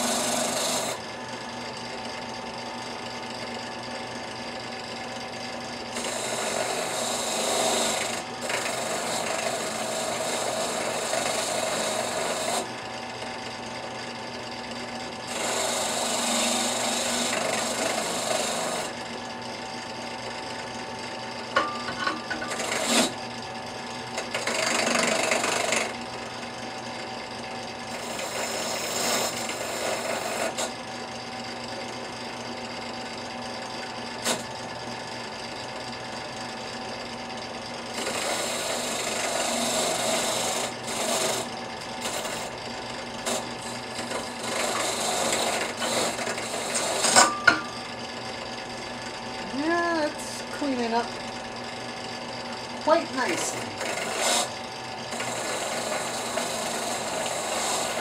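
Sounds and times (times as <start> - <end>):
wire wheel rasping on steel: 0.0 - 1.0, 6.0 - 12.7, 15.3 - 19.0, 21.6 - 23.2, 28.0 - 30.7, 37.9 - 42.6, 43.2 - 47.7, 52.9 - 58.0.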